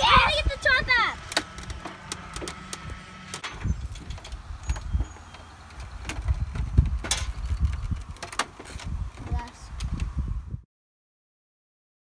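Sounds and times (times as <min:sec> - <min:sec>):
plastic printer parts knocking: 0:01.3 - 0:09.6.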